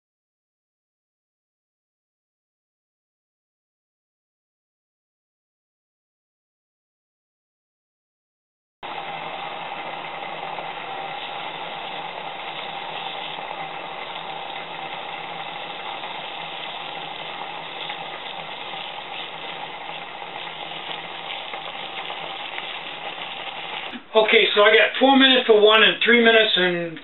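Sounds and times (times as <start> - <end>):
water boiling in pot: 8.8 - 25.4.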